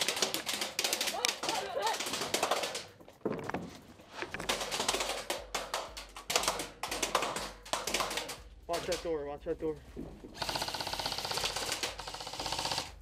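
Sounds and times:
airsoft guns firing bursts: 0:00.0 - 0:02.9, 0:04.5 - 0:09.1, 0:10.4 - 0:13.0.

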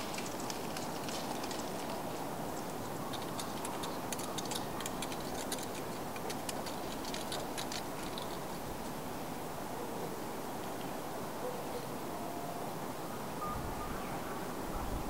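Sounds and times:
outdoor background hum: 0:00.0 - 0:15.0.

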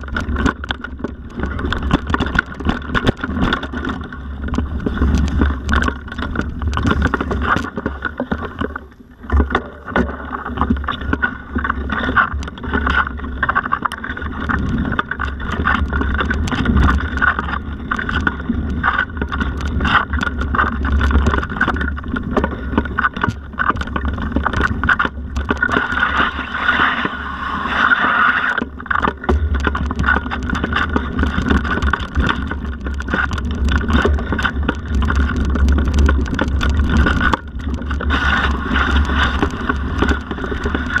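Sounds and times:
bike rattling over rough trail: 0:00.0 - 0:41.0.

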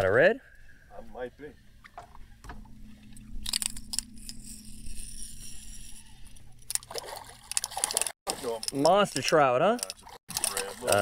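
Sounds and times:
steady low hum: 0:00.0 - 0:07.6
fishing reel clicking and whirring: 0:03.4 - 0:06.9, 0:09.7 - 0:11.0.

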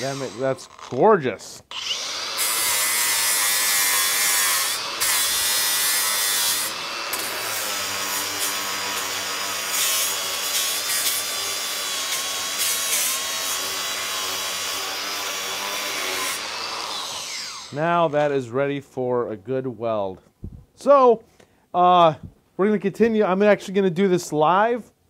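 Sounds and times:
angle grinder grinding steel: 0:00.0 - 0:18.2
grinder motor whine: 0:14.8 - 0:17.7.

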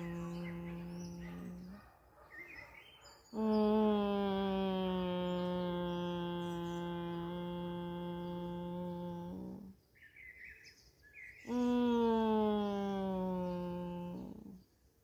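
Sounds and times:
woman chanting long tone: 0:00.0 - 0:01.8, 0:03.4 - 0:09.8, 0:11.5 - 0:14.6.

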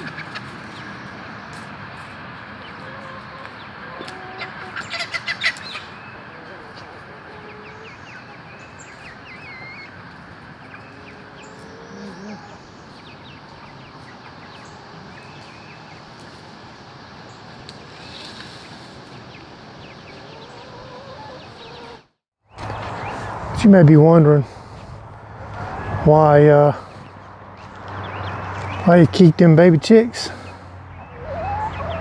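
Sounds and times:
hens clucking: 0:00.0 - 0:00.9, 0:02.6 - 0:16.5, 0:17.7 - 0:22.1, 0:30.2 - 0:32.0
chicks peeping: 0:00.0 - 0:16.5, 0:17.2 - 0:22.0, 0:27.7 - 0:29.0, 0:30.4 - 0:32.0
outdoor background hiss: 0:00.0 - 0:30.9.

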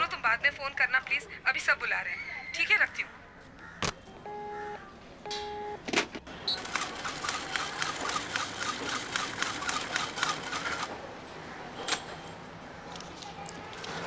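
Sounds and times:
telephone line tone beep: 0:04.2 - 0:05.8
telephone receiver click: 0:05.3 - 0:05.6.

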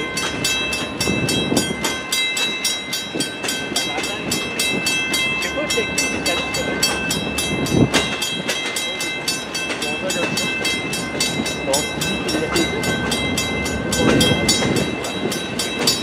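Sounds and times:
crossing signal bell ringing: 0:00.0 - 0:16.0
freight train wheels clattering: 0:00.0 - 0:16.0
train car clunk: 0:00.0 - 0:16.0.

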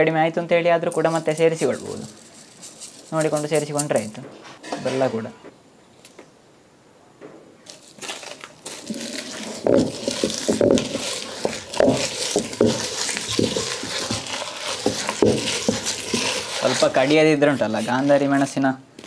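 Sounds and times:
stone pestle crunching chillies: 0:00.8 - 0:04.2, 0:07.6 - 0:18.6.

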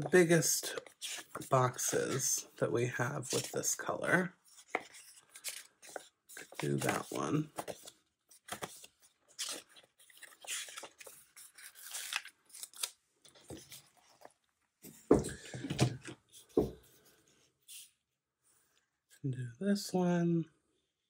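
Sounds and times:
paper rustling and crackling: 0:03.2 - 0:14.4.

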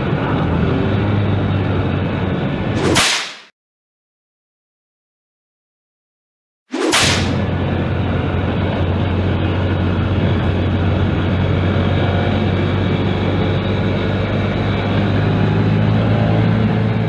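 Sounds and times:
wind and road rush: 0:00.0 - 0:03.4, 0:06.8 - 0:17.0
motorcycle engine cruising: 0:07.9 - 0:17.0.

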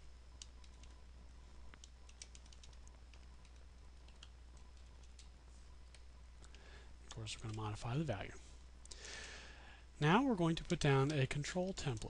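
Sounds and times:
steady low hum: 0:00.0 - 0:12.0
computer keyboard typing: 0:00.4 - 0:01.0, 0:01.7 - 0:07.8, 0:10.6 - 0:12.0.

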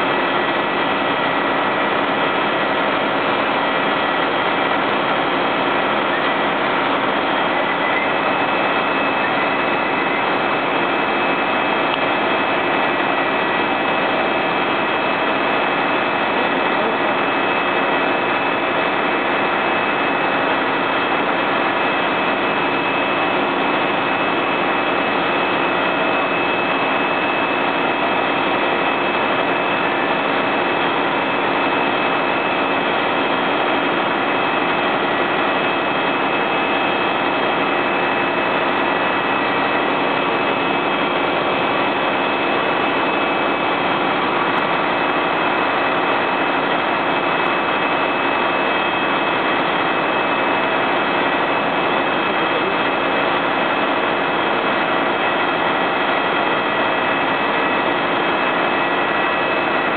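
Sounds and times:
fire truck engine drone: 0:00.0 - 0:59.9.

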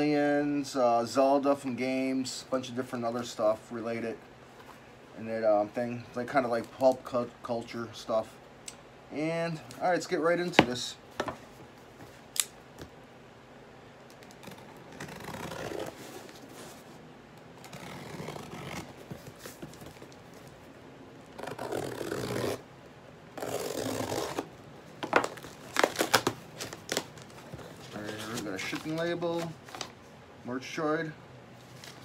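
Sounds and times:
tape tearing and cardboard scraping: 0:14.2 - 0:16.8, 0:17.6 - 0:20.1, 0:21.3 - 0:22.6, 0:23.4 - 0:29.9
paper crackling: 0:25.1 - 0:30.0.

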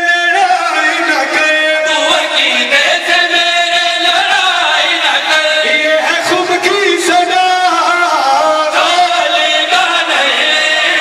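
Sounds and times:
man chanting through loudspeaker: 0:00.0 - 0:11.0.

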